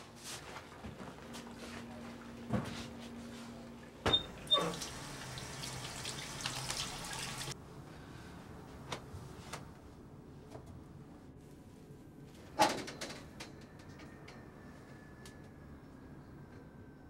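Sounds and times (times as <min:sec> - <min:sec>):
sink tap running: 0:04.3 - 0:07.6.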